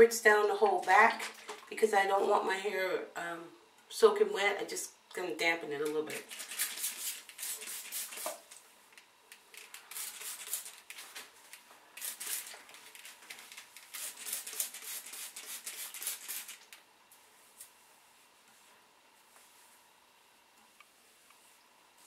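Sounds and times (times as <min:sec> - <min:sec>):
spray bottle squirting: 0:06.3 - 0:08.5, 0:09.6 - 0:10.9, 0:12.0 - 0:16.7.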